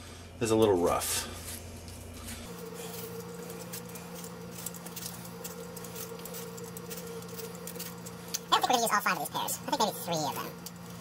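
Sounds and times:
steady low hum: 0:00.0 - 0:11.0
peeler scraping pear skin: 0:02.5 - 0:08.8.

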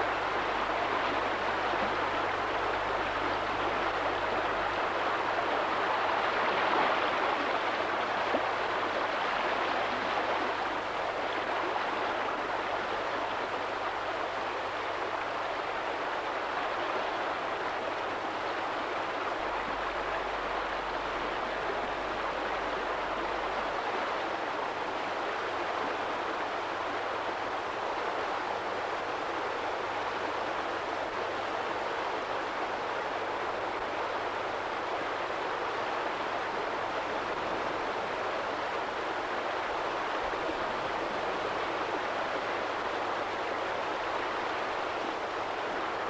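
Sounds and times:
rushing river water: 0:00.0 - 0:46.0.

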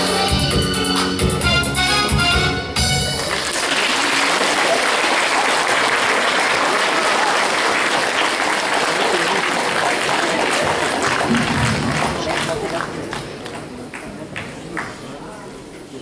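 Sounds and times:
music: 0:00.0 - 0:03.4
audience applauding: 0:03.1 - 0:15.2.

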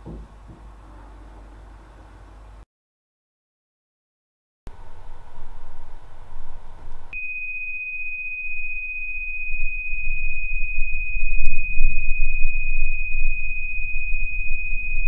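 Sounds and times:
low rumble: 0:04.7 - 0:07.2
high-pitched pure tone: 0:04.7 - 0:15.0.

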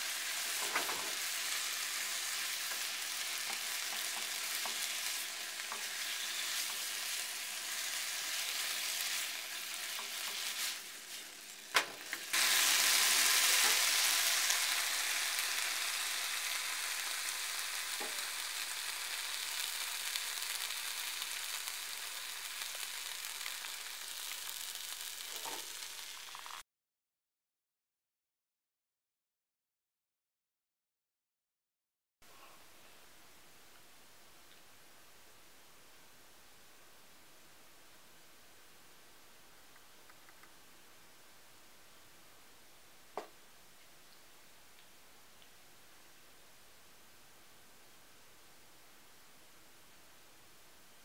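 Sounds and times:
food sizzling in a frying pan: 0:00.0 - 0:26.6.

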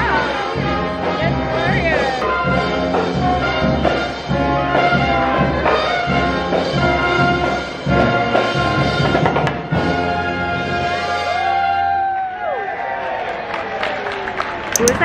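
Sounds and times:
steady drum beat: 0:00.0 - 0:10.1
marching brass band playing: 0:00.0 - 0:11.8.

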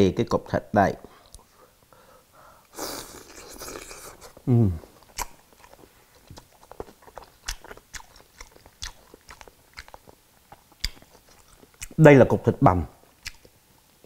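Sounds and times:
man biting with breathy hiss: 0:02.5 - 0:04.4
man humming from the throat: 0:04.5 - 0:04.9
chewing with wet mouth clicks: 0:05.0 - 0:12.0, 0:13.2 - 0:13.6.

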